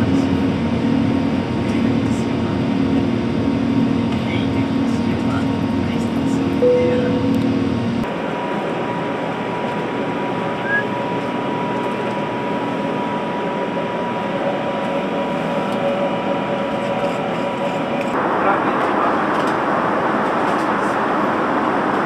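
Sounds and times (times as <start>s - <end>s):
airliner cabin noise: 0.0s - 22.0s
low rumble: 2.3s - 8.1s.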